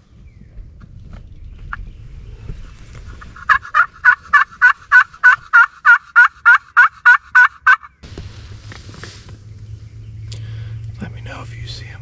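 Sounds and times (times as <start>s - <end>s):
turkey yelps: 3.4s - 7.9s.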